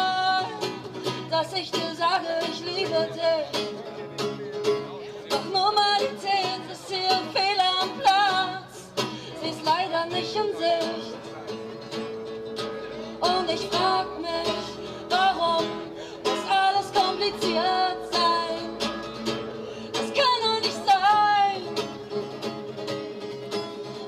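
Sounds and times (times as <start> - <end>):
woman singing: 0.0 - 3.7, 5.3 - 11.2, 13.2 - 19.3, 19.9 - 22.0
strummed acoustic guitar: 0.0 - 24.0.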